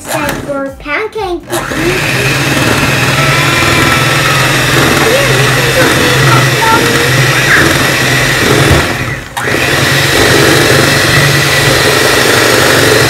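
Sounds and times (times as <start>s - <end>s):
electric hand mixer whirring: 0.0s - 0.5s, 1.4s - 13.0s.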